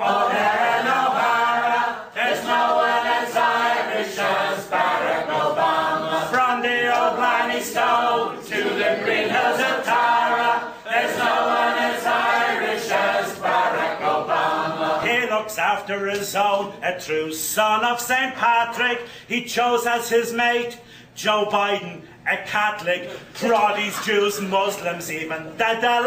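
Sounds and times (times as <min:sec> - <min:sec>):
group singing: 0:00.0 - 0:15.5.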